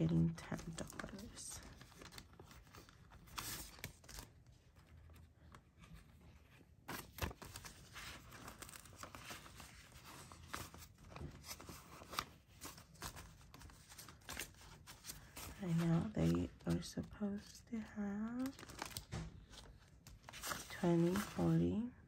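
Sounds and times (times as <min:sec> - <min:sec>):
banknotes rustling: 0:00.2 - 0:21.8
plastic pouch crinkling: 0:07.0 - 0:21.4.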